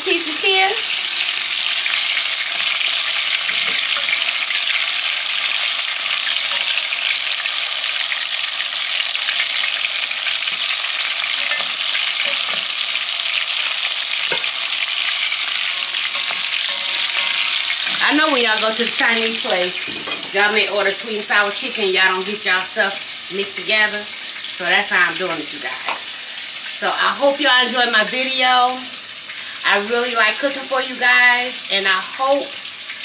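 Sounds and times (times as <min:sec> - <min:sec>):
chicken deep-frying in oil: 0:00.0 - 0:33.0
slotted spoon stirring: 0:13.4 - 0:18.0.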